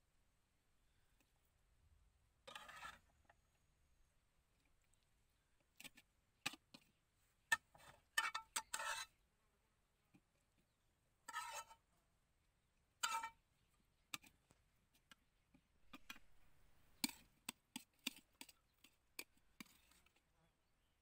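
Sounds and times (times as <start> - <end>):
metal spoon scraping a plate: 2.5 - 3.1, 7.5 - 9.2, 11.3 - 11.8, 13.0 - 13.4, 19.6 - 20.1.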